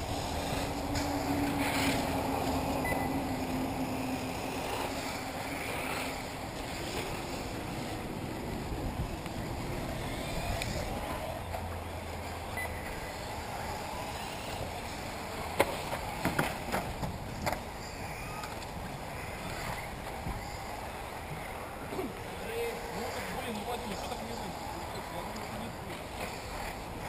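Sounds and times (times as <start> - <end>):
rc cars rushing: 0.0 - 27.0.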